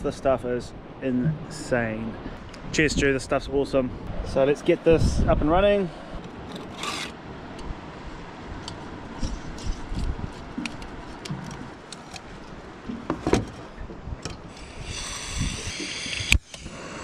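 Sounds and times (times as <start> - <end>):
steady gas hiss: 14.5 - 17.0.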